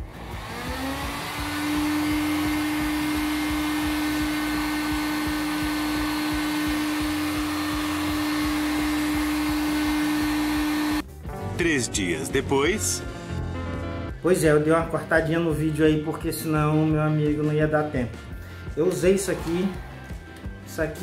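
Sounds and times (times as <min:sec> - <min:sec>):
heat gun blowing air: 0:00.0 - 0:11.0
motor hum: 0:00.0 - 0:11.1.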